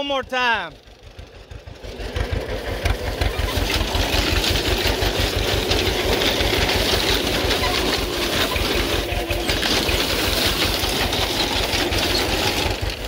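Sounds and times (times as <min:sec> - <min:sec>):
tractor engine pulsing: 0:00.0 - 0:13.0
grain binder mechanism clattering: 0:02.4 - 0:13.0.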